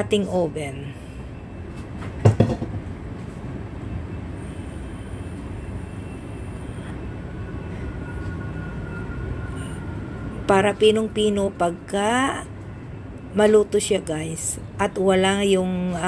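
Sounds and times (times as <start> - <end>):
low rumbling hum: 0.0 - 16.0
faint high-pitched tones: 4.0 - 13.8.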